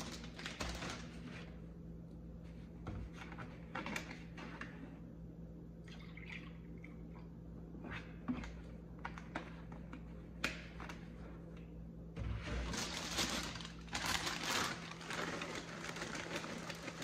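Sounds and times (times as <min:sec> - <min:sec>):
plastic bag crinkling: 0:00.0 - 0:01.3, 0:12.6 - 0:17.0.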